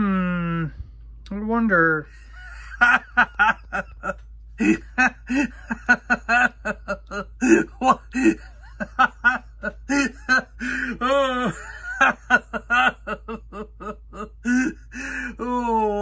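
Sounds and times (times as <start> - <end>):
person chuckling: 2.2 - 16.0.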